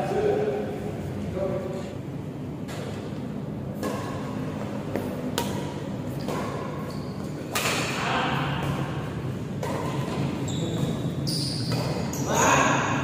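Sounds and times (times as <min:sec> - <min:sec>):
rackets hitting shuttlecock: 0:02.6 - 0:13.0.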